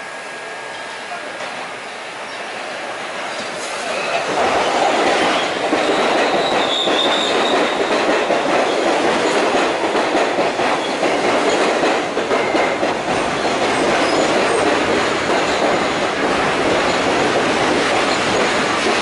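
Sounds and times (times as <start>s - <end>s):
subway train wheels clattering: 0.0s - 19.0s
high wheel squeal: 3.2s - 7.6s.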